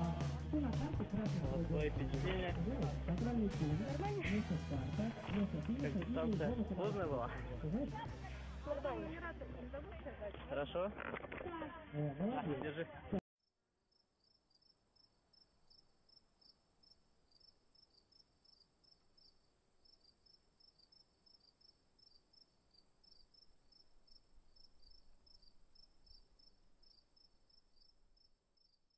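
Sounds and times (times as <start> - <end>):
high-pitched insect chirping: 13.9 - 28.9.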